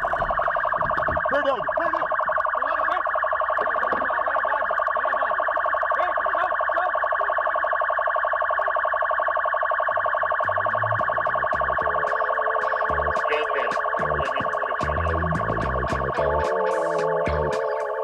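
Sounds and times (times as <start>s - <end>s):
fast-pulsing electronic siren: 0.0s - 18.0s
background music: 11.3s - 18.0s.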